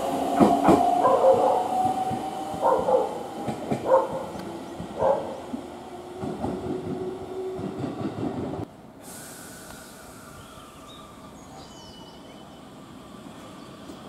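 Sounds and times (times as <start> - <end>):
train wheels rumbling on rails: 0.0 - 8.7
standing train humming: 0.0 - 14.0.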